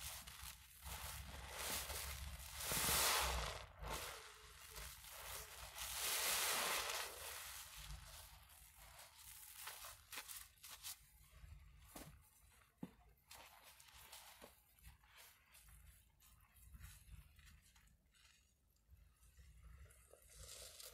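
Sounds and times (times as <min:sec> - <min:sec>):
foam crackling and popping: 0:00.0 - 0:12.2
wet sponge squishing: 0:00.0 - 0:20.9.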